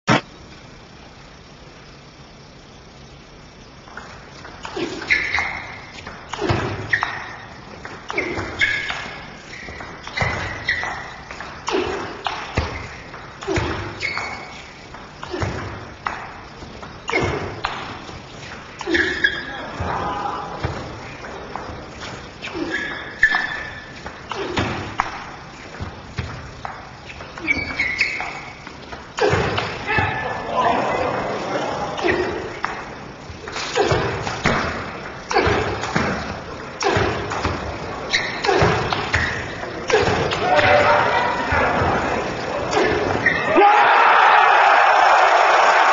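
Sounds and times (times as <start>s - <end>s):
table tennis ball hitting bats: 3.9s - 20.0s, 20.6s - 30.3s, 32.0s - 41.8s.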